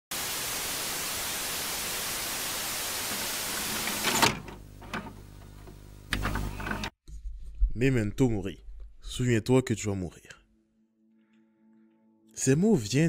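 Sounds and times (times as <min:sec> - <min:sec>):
tv static hiss: 0:00.1 - 0:06.9
video recorder hum: 0:01.8 - 0:07.0
cassette loading clunk: 0:03.8 - 0:06.9.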